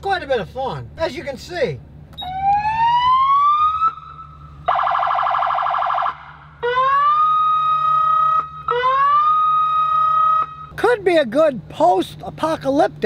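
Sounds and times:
siren wailing: 2.2 - 10.7.

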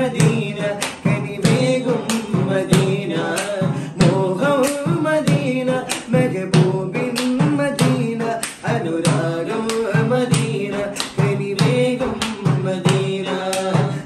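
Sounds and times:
hand-beaten rhythm: 0.0 - 14.0
man singing devotional song: 0.0 - 14.0.

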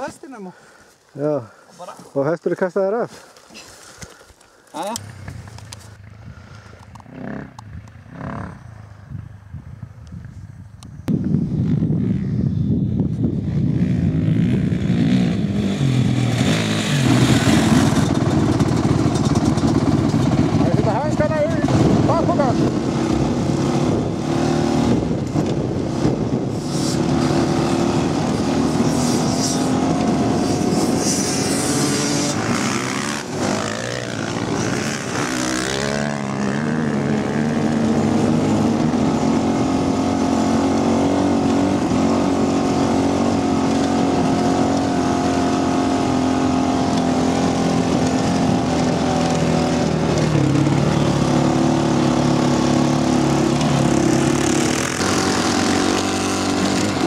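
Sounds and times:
motorcycle engines running: 2.2 - 57.0
rush of noise: 11.1 - 47.6.

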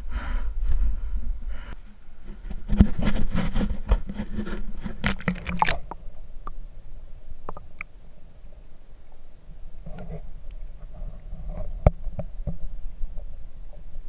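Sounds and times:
splashing and scraping: 2.3 - 6.2.

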